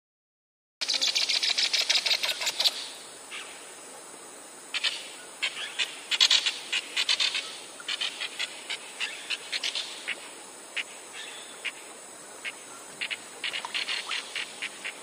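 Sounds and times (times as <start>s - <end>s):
animals chirping: 12.4s - 15.0s.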